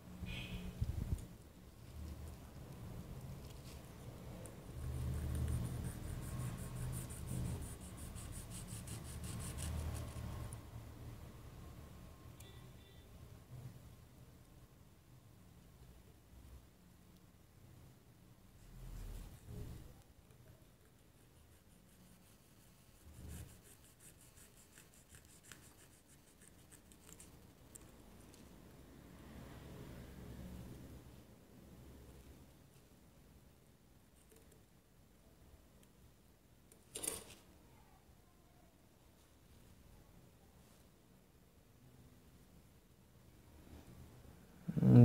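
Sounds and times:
light rapid scratching: 0:01.2 - 0:10.6, 0:20.8 - 0:28.6.

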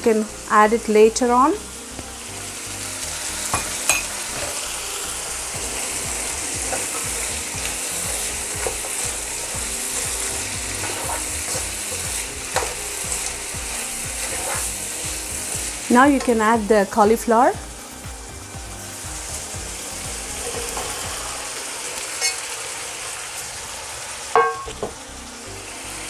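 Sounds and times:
vegetables sizzling in a wok: 0:00.0 - 0:26.0
spatula knocking the pan: 0:08.1 - 0:12.8, 0:24.4 - 0:24.9
spatula scraping a pan: 0:09.9 - 0:14.8.

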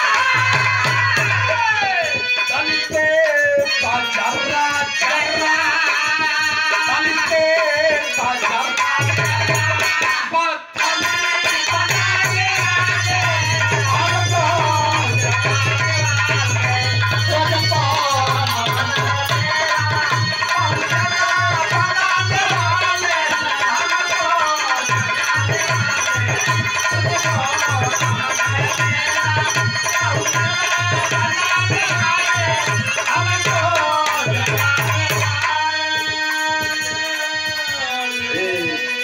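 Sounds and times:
harmonium: 0:00.0 - 0:39.0
man singing: 0:00.0 - 0:39.0
hand drum fast rhythm: 0:05.2 - 0:38.6.

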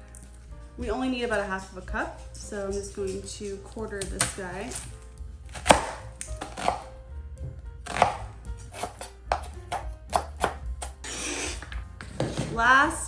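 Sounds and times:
knife chopping on cutting board: 0:05.5 - 0:12.5
knife scraping board: 0:07.9 - 0:12.5.

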